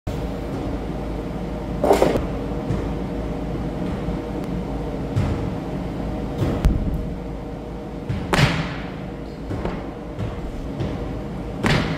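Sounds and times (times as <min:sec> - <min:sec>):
ventilation hum: 0:00.1 - 0:11.9.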